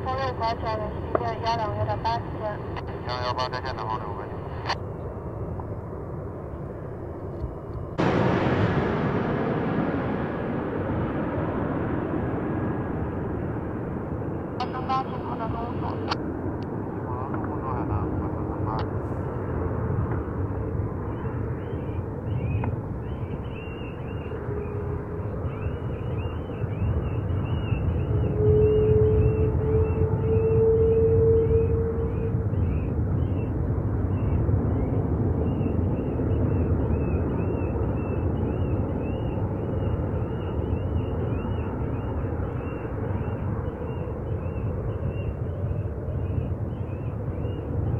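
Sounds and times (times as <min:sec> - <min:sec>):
distant airport traffic rumble: 0:00.0 - 0:47.9
birds chirping: 0:14.2 - 0:16.2, 0:21.0 - 0:47.9.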